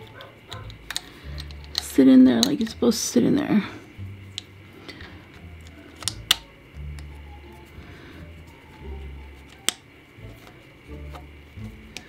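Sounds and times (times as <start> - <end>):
small clicks and scrapes: 0.0 - 2.7
faint background music: 0.0 - 12.0.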